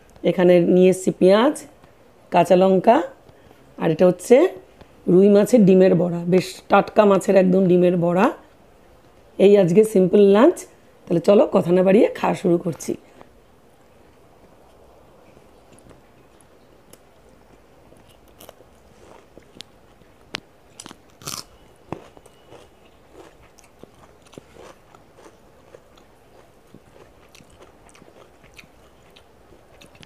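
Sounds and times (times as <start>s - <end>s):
person chewing food: 15.7s - 30.0s.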